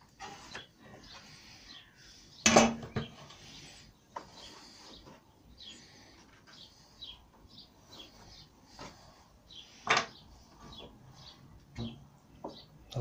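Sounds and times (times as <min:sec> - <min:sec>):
faint bird chirps: 0:00.3 - 0:08.6.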